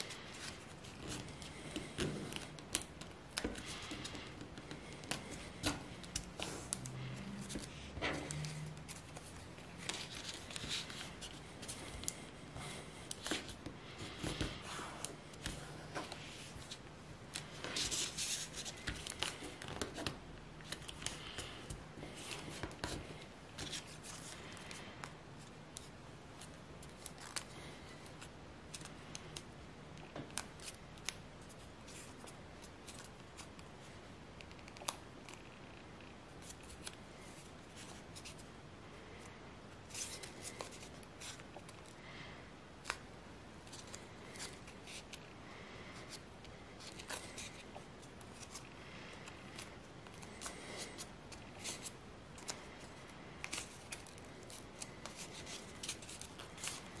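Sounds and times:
paper folding and creasing: 0:00.0 - 0:29.4, 0:46.0 - 0:57.0.

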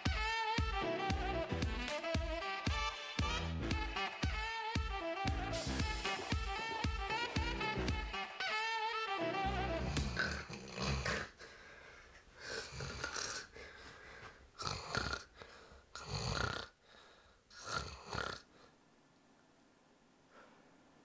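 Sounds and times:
man snoring: 0:05.5 - 0:08.1, 0:09.8 - 0:11.4, 0:12.5 - 0:13.5, 0:14.6 - 0:15.3, 0:16.0 - 0:16.8, 0:17.5 - 0:18.5.

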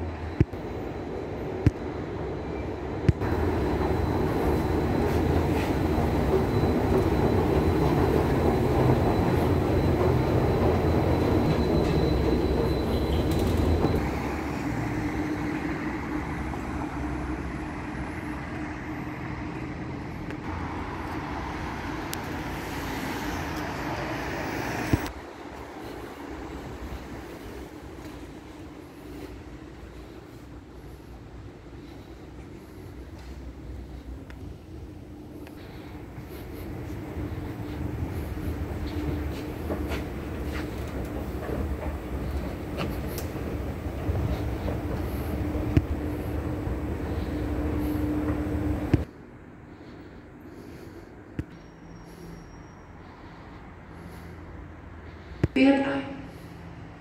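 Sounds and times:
train rumbling: 0:00.0 - 0:57.0
faint thin squeal: 0:04.3 - 0:14.2, 0:51.5 - 0:53.7.

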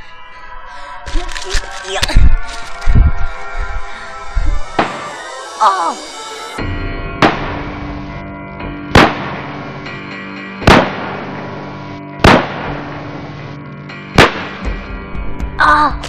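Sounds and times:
background music: 0:00.0 - 0:16.0
gunshot sound effects: 0:04.8 - 0:05.2, 0:07.2 - 0:07.8, 0:08.9 - 0:09.7, 0:10.6 - 0:11.6, 0:12.2 - 0:13.0, 0:14.2 - 0:14.8.

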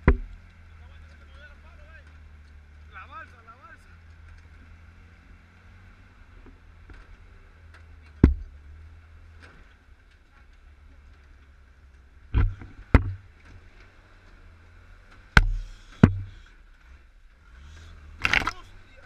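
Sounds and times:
sharp engine knocks: 0:00.0 - 0:00.6, 0:07.7 - 0:08.7, 0:12.2 - 0:13.6, 0:15.1 - 0:16.8
engine running with low hum: 0:00.0 - 0:19.0.

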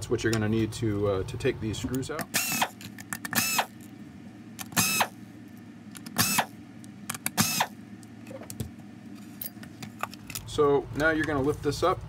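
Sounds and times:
cordless drill whirring: 0:02.4 - 0:02.8, 0:03.4 - 0:03.7, 0:04.8 - 0:05.2, 0:06.2 - 0:06.5, 0:07.4 - 0:07.7.

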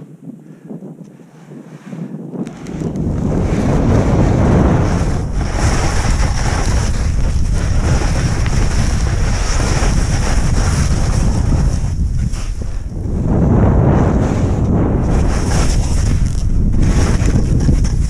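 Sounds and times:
wind rushing over microphone: 0:00.0 - 0:18.0
skis hissing through snow: 0:03.4 - 0:12.9, 0:15.0 - 0:17.2.

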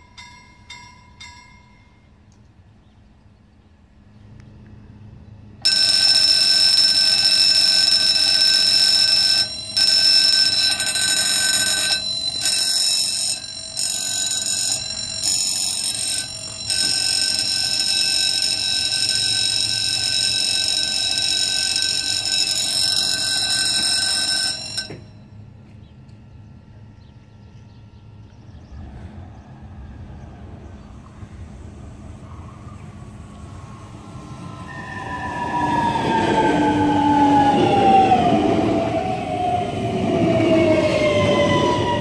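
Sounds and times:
level crossing warning bell: 0:00.0 - 0:02.6, 0:05.5 - 0:25.8.

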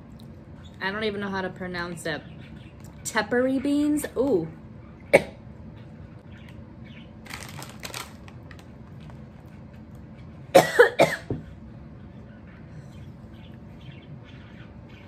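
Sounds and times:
woman coughing: 0:10.5 - 0:11.4.

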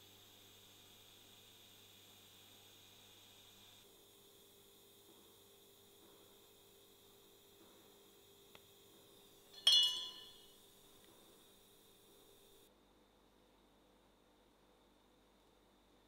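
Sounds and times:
welding hum: 0:00.0 - 0:12.7
sharp metallic clink: 0:09.5 - 0:10.6.

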